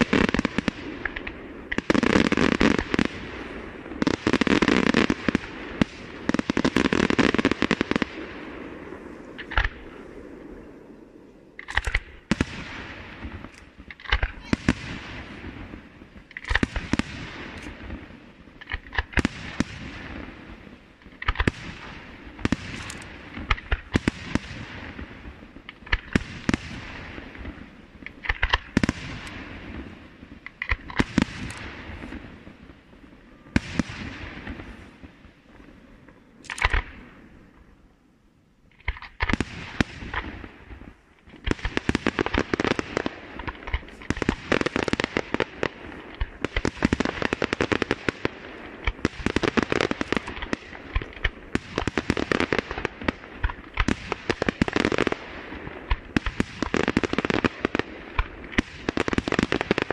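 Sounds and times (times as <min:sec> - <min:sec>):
rapid firework bangs: 0:00.0 - 0:10.7, 0:11.6 - 0:35.4, 0:38.8 - 0:59.9
firework shells bursting: 0:36.4 - 0:37.1, 0:38.7 - 0:59.9.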